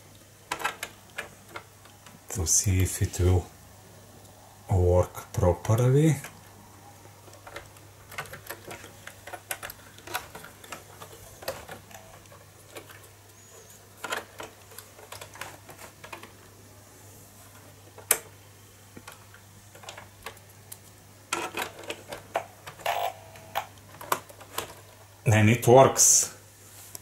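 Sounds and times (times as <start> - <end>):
plugs and cables clicking: 0.5 - 2.2, 7.1 - 13.4, 14.0 - 16.4, 17.5 - 24.9.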